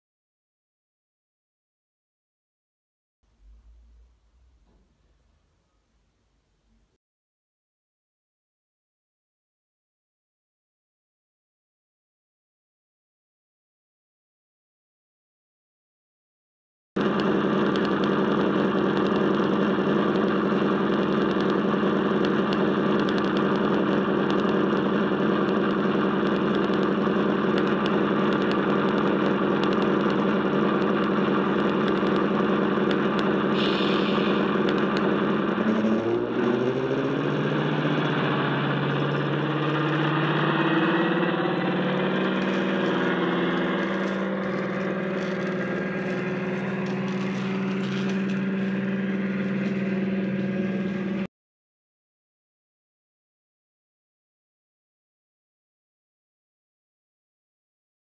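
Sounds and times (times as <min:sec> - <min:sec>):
diesel locomotive engine sound: 0:03.3 - 0:06.9, 0:17.0 - 0:51.3.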